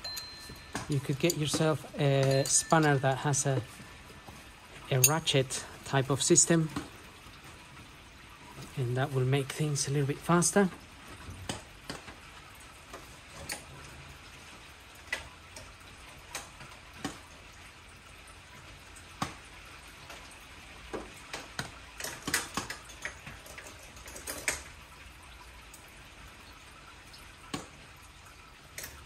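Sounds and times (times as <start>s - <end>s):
spanners clicking on metal: 0.0s - 3.0s.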